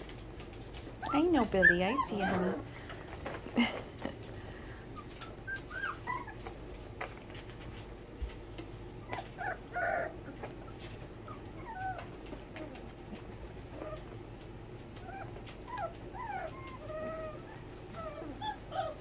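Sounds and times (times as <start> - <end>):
puppies whimpering and yipping: 0.7 - 2.8, 4.7 - 6.9, 8.9 - 19.0.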